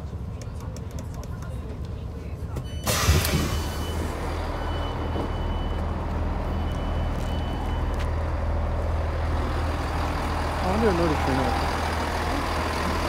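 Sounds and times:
train engine idling hum: 0.0 - 13.0.

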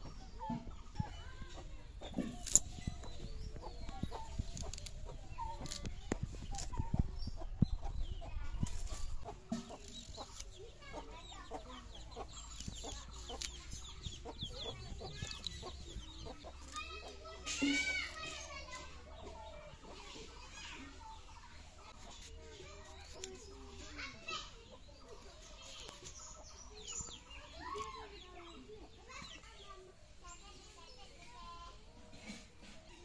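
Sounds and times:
hens clucking: 0.0 - 23.9.

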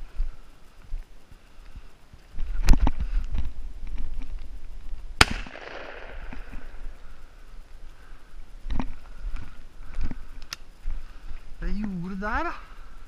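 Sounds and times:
shotgun shot with echo: 5.2 - 6.5.

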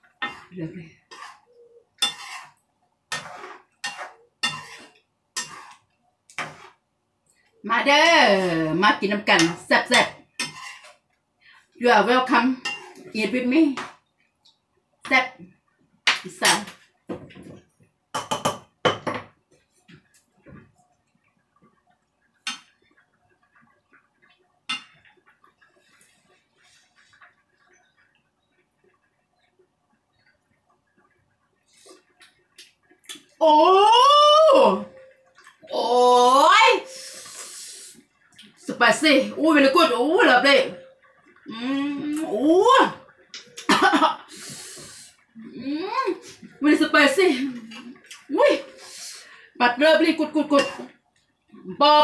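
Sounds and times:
spoon scraping a frying pan: 0.0 - 6.8, 7.9 - 11.1, 12.3 - 14.0, 24.7 - 27.3, 50.4 - 51.0
spoon clinking on pan: 2.0 - 2.5.

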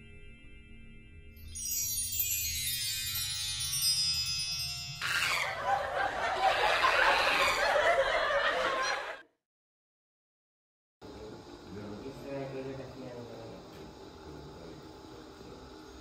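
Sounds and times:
chimes ringing: 1.4 - 5.9
people laughing: 5.4 - 9.4.

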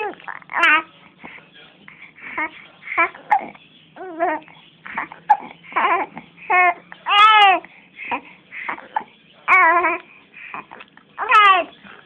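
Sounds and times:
infant cooing and babbling: 0.0 - 0.9, 2.2 - 11.7.

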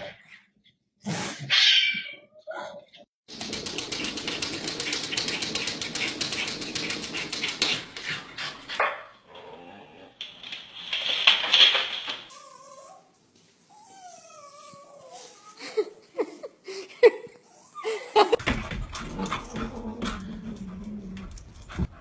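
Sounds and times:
rapid rasping strokes: 3.3 - 8.8
dogs barking: 3.8 - 9.2.

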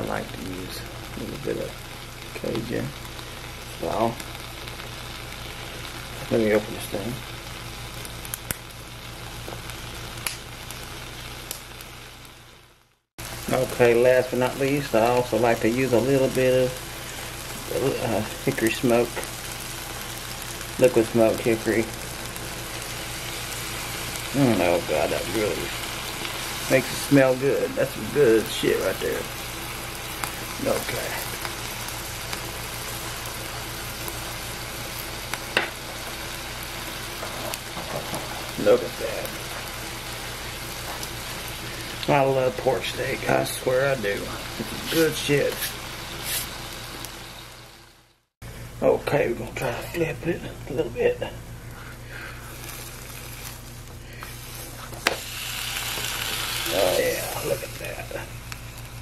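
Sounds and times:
meat sizzling on a griddle: 0.0 - 59.0
sharp crack: 10.2 - 10.5.

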